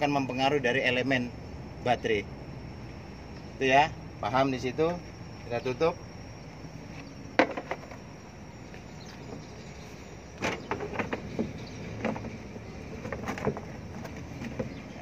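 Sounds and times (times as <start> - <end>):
steady low hum: 0.0 - 15.0
cover knocking and rattling: 7.4 - 8.0, 10.4 - 14.8.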